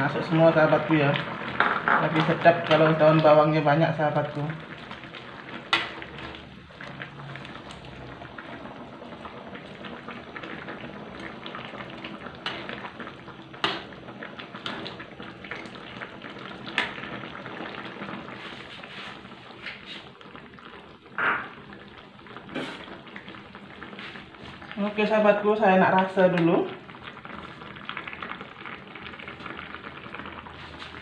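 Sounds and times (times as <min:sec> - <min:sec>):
curry bubbling in a wok: 0:00.0 - 0:31.0.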